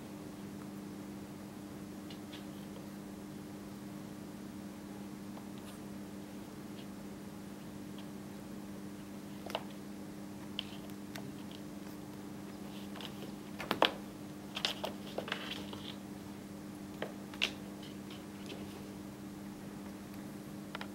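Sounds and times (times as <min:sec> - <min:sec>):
steady low hum: 0:00.0 - 0:20.9
kitten paws and ball tapping: 0:12.8 - 0:14.0.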